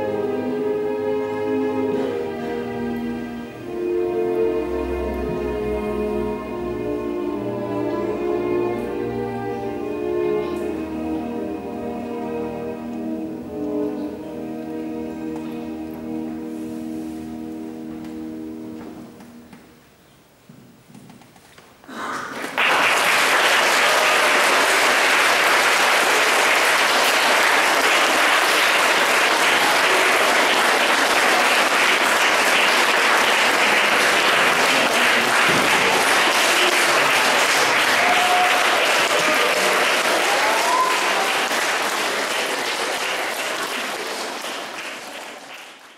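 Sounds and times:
audience applauding: 22.1 - 45.9.

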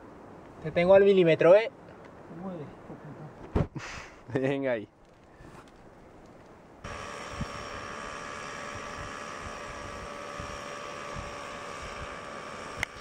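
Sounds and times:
steady drone with thin tones: 6.8 - 13.0.

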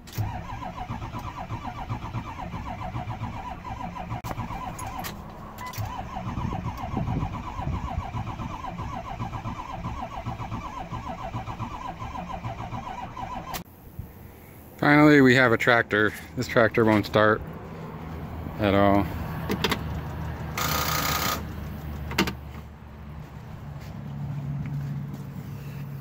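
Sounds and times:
diesel engine cranking on starter: 0.0 - 13.7, 16.9 - 22.7.

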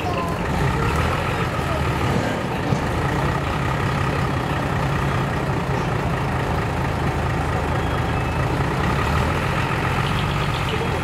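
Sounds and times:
truck diesel engine idling: 0.0 - 11.0.

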